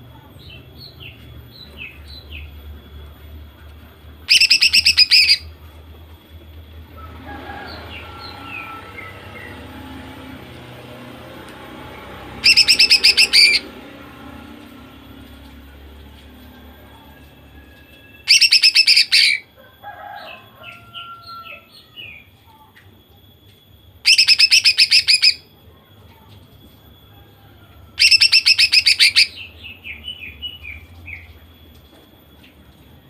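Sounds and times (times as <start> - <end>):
bird singing rapid bursts: 4.3 - 5.5, 12.4 - 13.8, 18.2 - 19.4, 24.0 - 25.5, 28.0 - 31.3.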